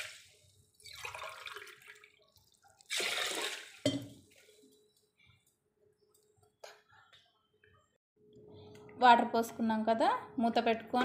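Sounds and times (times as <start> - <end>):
water splashing into a pot: 0.0 - 4.3.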